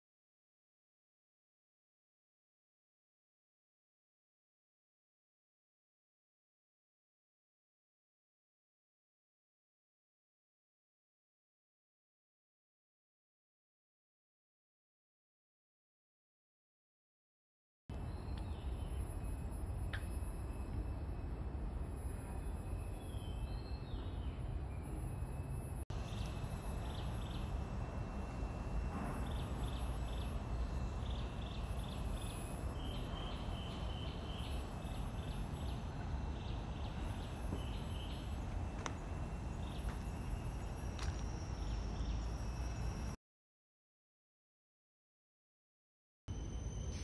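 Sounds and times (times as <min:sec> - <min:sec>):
faint insect drone: 0:17.9 - 0:43.2, 0:46.3 - 0:47.0.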